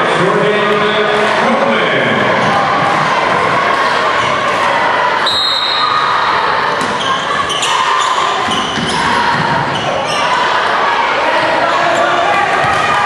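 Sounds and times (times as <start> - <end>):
echoing crowd chatter: 0.0 - 13.0
sneakers squeaking on hardwood: 6.8 - 10.4.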